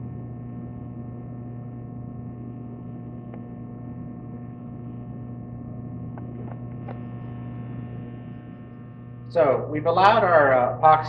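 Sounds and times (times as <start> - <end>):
electrical mains hum: 0.0 - 11.0.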